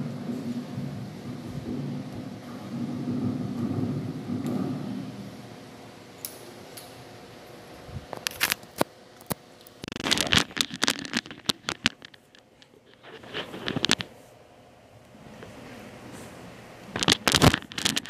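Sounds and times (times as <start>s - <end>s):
microphone handling rumble: 0.0s - 5.7s.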